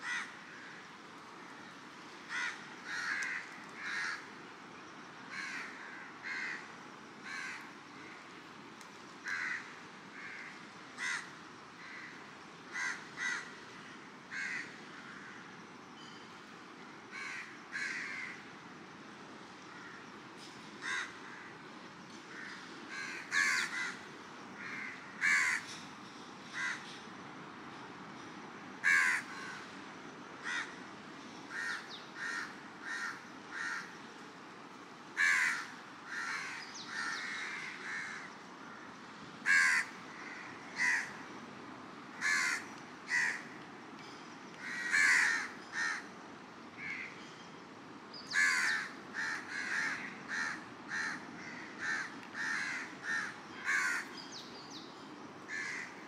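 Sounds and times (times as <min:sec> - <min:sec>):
crows cawing: 0:00.0 - 0:01.0, 0:02.3 - 0:04.3, 0:05.3 - 0:08.3, 0:09.2 - 0:15.5, 0:17.1 - 0:18.5, 0:19.7 - 0:20.1, 0:20.8 - 0:21.7, 0:22.3 - 0:25.8, 0:26.5 - 0:26.9, 0:28.8 - 0:29.7, 0:30.4 - 0:30.8, 0:31.5 - 0:34.0, 0:35.2 - 0:41.2, 0:42.2 - 0:43.6, 0:44.6 - 0:46.1, 0:46.8 - 0:47.2, 0:48.3 - 0:54.2, 0:55.5 - 0:56.0.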